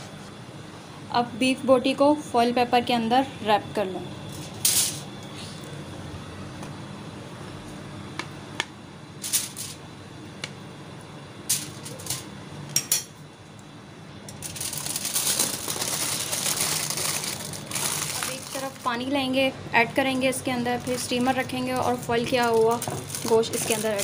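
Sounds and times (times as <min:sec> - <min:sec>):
aluminium foil crinkling: 0:14.3 - 0:19.2, 0:20.5 - 0:24.0.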